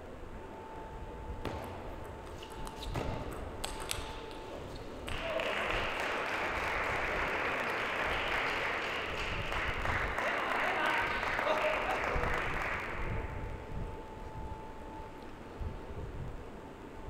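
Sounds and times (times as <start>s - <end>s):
table tennis ball clicks: 2.4s - 4.5s
crowd applause: 5.1s - 13.1s.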